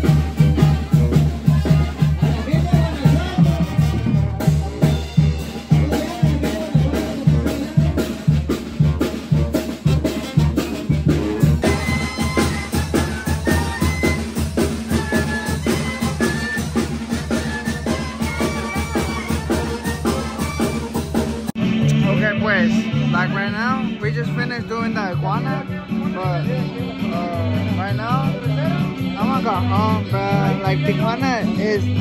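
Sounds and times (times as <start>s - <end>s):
brass band music: 0.0s - 32.0s
drums: 0.0s - 32.0s
sousaphone bass line: 10.6s - 32.0s.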